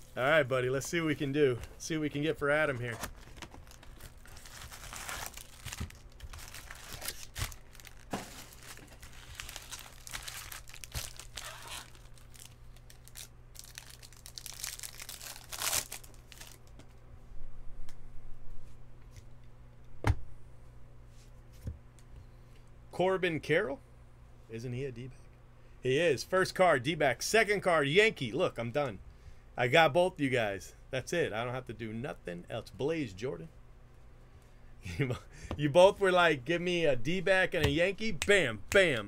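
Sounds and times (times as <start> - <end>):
cards rustling: 2.5 - 16.8
wrappers tearing and crinkling: 2.8 - 16.7.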